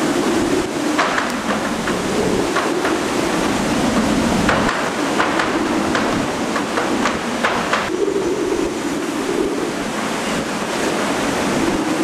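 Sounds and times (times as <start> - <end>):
driving rain: 0.0 - 12.0
strong wind: 0.0 - 12.0
sharp knocks and rattles: 4.0 - 7.9.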